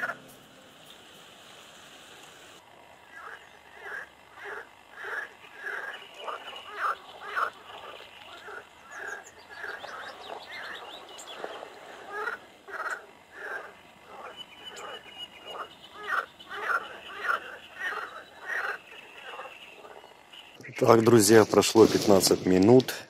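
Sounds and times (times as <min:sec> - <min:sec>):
frogs croaking in chorus: 0:02.6 - 0:20.9.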